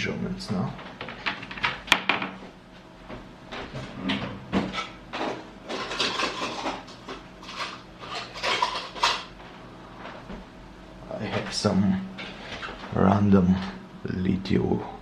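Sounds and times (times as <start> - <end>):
small objects knocking on desk: 0.9 - 2.4.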